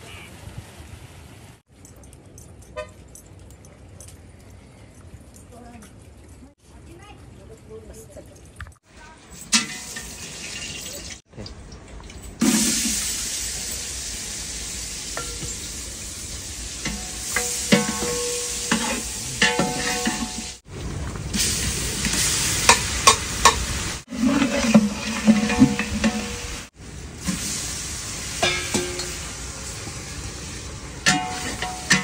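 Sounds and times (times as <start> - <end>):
meat sizzling in a pot: 9.4 - 11.2, 12.4 - 20.7, 21.3 - 32.0
metal ladle scraping a pot: 16.8 - 20.6, 23.4 - 26.6, 31.0 - 32.0.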